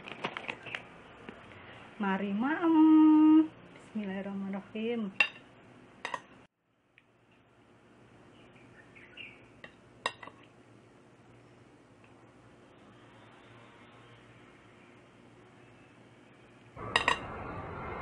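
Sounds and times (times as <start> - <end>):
metal spoon clinking on plate: 10.0 - 10.4, 16.9 - 17.2.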